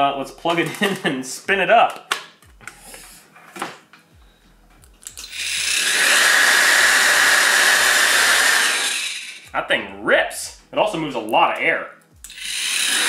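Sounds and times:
electric chainsaw motor whirring: 0:05.2 - 0:09.5, 0:12.3 - 0:13.0.

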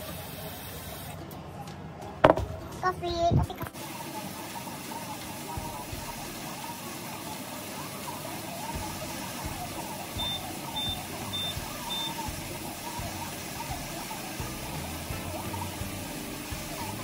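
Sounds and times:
high-pitched beeps: 0:10.2 - 0:12.2.

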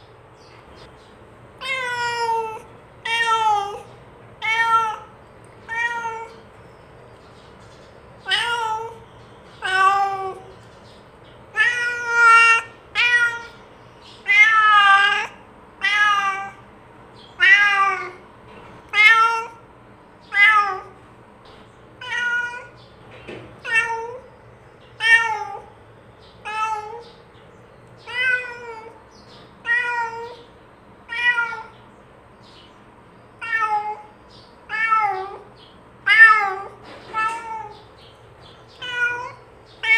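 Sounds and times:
cat meowing: 0:01.6 - 0:06.4, 0:08.2 - 0:09.0, 0:09.6 - 0:10.5, 0:11.5 - 0:13.6, 0:14.2 - 0:16.6, 0:17.3 - 0:18.2, 0:18.9 - 0:19.6, 0:20.2 - 0:21.0, 0:22.0 - 0:22.8, 0:23.6 - 0:24.3, 0:25.0 - 0:25.7, 0:26.4 - 0:27.2, 0:28.0 - 0:29.0, 0:29.6 - 0:31.8, 0:33.4 - 0:38.0, 0:38.7 - 0:39.9.

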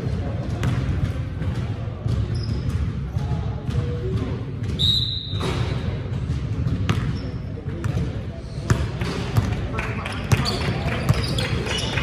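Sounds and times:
basketball bouncing on gym floor: 0:00.0 - 0:12.0
sneakers squeaking: 0:00.4 - 0:12.0
whistle blast: 0:04.8 - 0:05.4.

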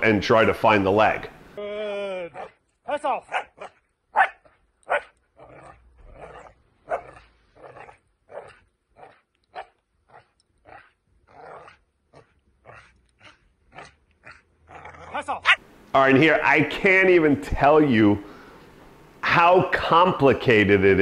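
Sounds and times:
puppy barking and yipping: 0:03.2 - 0:05.2.

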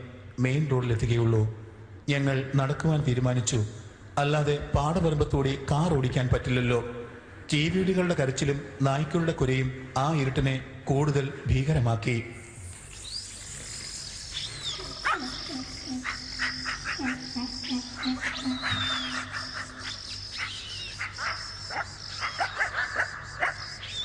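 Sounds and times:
insects shrilling: 0:12.3 - 0:24.0
frogs croaking: 0:12.4 - 0:24.0.

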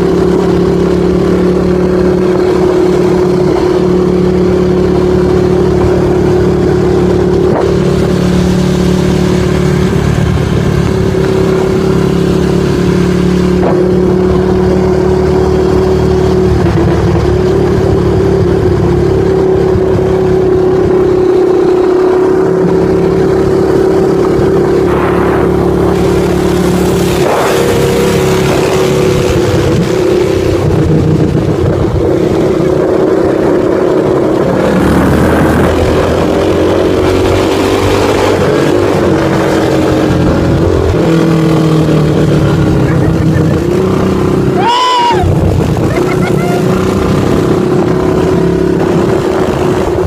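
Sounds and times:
quad bike engine running: 0:00.0 - 0:50.0
wind on microphone: 0:45.1 - 0:50.0.

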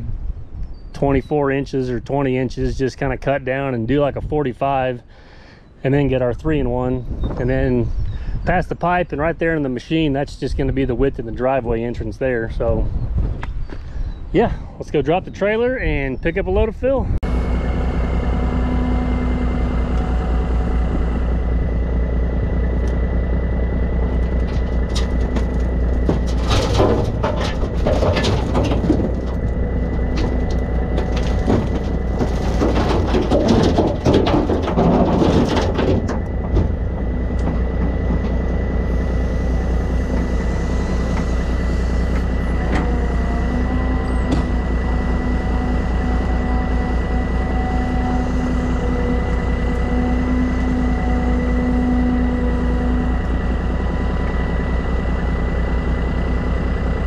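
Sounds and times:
constant high whine: 0:00.0 - 0:57.0
diesel engines running: 0:00.0 - 0:57.0
rock clattering into truck bed: 0:24.2 - 0:38.4.

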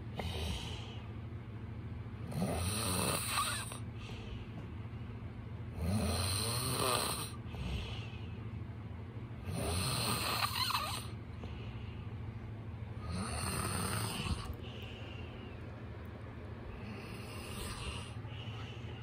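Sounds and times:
man snoring: 0:02.2 - 0:03.8, 0:05.8 - 0:07.8, 0:09.4 - 0:11.2, 0:13.0 - 0:14.6, 0:16.8 - 0:18.2.

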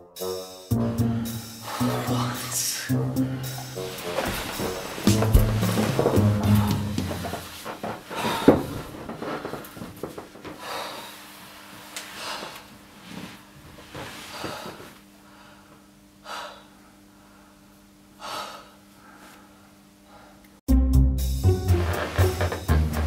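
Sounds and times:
man breathing heavily and gasping: 0:00.8 - 0:03.9, 0:08.1 - 0:08.8, 0:10.6 - 0:11.3, 0:14.3 - 0:20.5
faint steady hum: 0:06.2 - 0:20.6.

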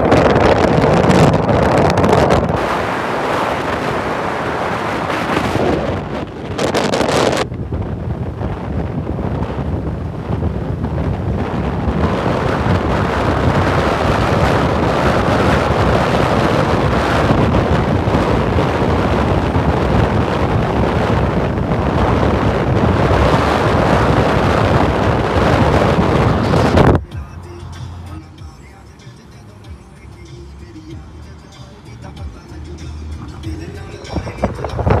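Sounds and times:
wind buffeting microphone: 0:00.0 - 0:28.6, 0:33.2 - 0:35.0
car road noise: 0:00.0 - 0:35.0.

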